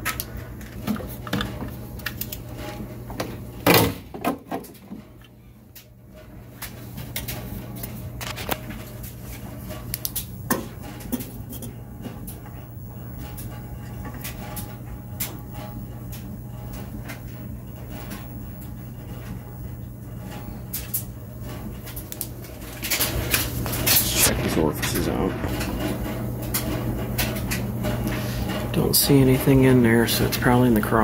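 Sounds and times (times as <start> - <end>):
metal burners clinking: 6.5 - 16.2, 16.8 - 31.0
low hum: 17.6 - 30.4.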